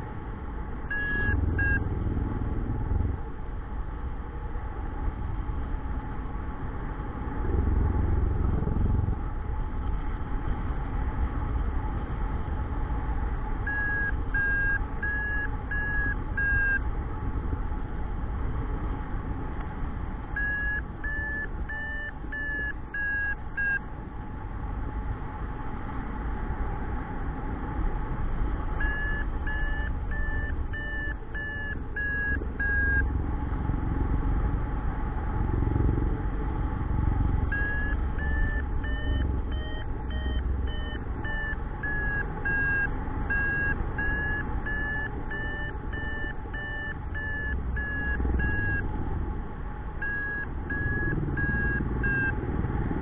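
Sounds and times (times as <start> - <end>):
variometer beeping: 0.8 - 1.9, 13.6 - 16.9, 20.3 - 23.9, 28.7 - 33.2, 37.4 - 49.0, 50.0 - 52.4.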